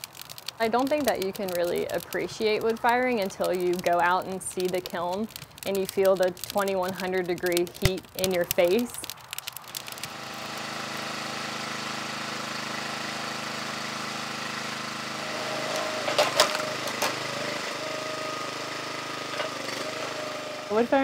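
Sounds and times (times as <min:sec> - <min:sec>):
wood cracking: 0:00.0 - 0:11.2, 0:15.4 - 0:17.8
small gas engine running: 0:09.6 - 0:21.0.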